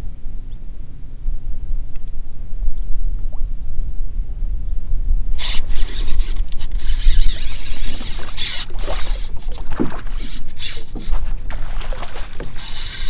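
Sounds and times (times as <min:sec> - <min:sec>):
low rumble: 0:00.0 - 0:05.7
water splashing: 0:05.6 - 0:13.0.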